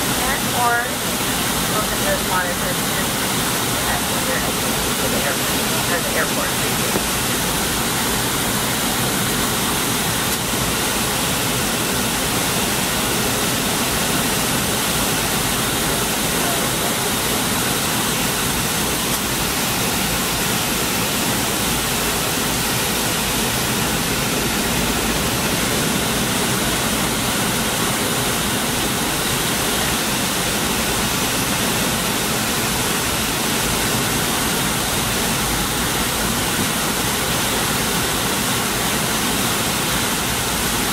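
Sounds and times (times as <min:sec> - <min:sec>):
airliner cabin noise: 0:00.0 - 0:09.5.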